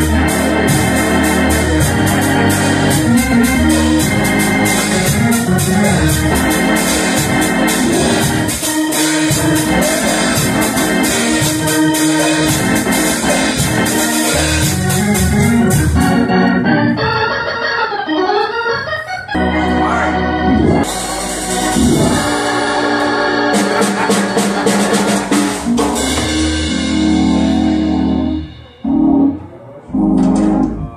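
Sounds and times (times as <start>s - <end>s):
organ playing held chords: 0.0s - 30.9s
drum and cymbal strokes: 3.8s - 14.9s, 20.8s - 22.9s.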